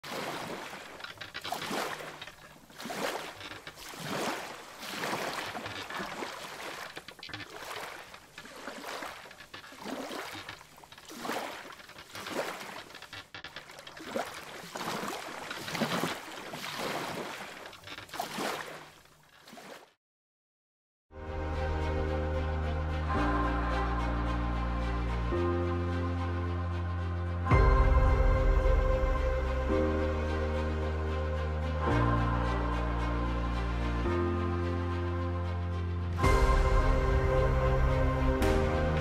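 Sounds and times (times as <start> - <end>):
water splashing in surges: 0.0 - 20.0.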